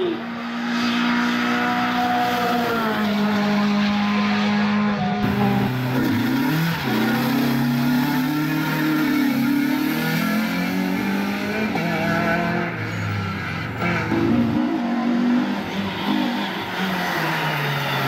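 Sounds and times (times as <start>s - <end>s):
race car engine revving: 0.0s - 18.0s.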